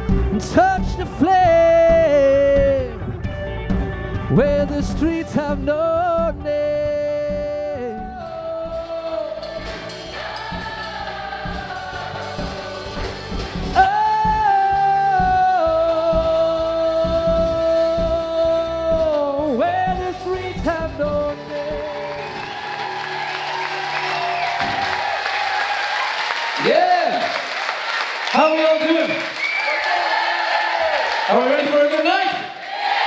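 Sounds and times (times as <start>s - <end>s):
steady drum beat: 0.0s - 6.5s, 7.2s - 25.8s
live rock band: 0.0s - 25.4s
man singing long notes: 4.3s - 9.6s, 13.8s - 22.6s.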